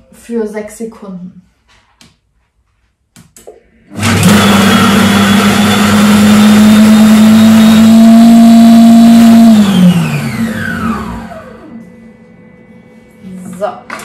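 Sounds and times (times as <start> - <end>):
food processor motor chopping: 3.9 - 11.8.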